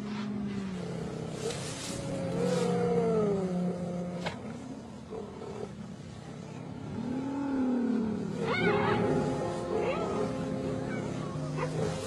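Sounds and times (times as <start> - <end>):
background music: 7.9 - 12.0.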